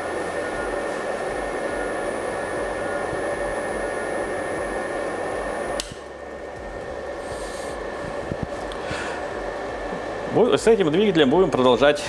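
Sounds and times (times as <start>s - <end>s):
electric motor hum and whine: 0.0s - 12.0s
click: 5.8s - 6.0s.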